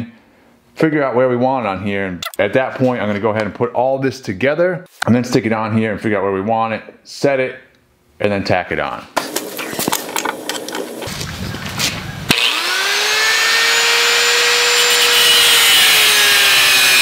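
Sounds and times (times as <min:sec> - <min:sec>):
angle grinder grinding steel: 0:12.3 - 0:17.0.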